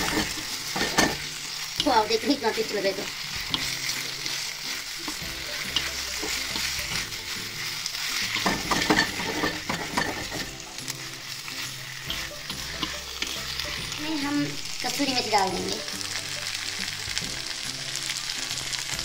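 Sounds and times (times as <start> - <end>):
spatula scraping a pan: 0.0 - 14.3
gravy sizzling in a wok: 0.0 - 19.0.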